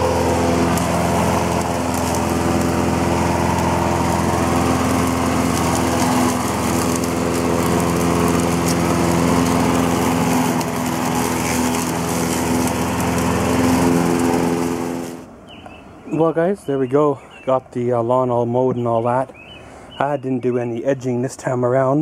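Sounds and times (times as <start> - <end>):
lawn mower engine running: 0.0 - 16.3.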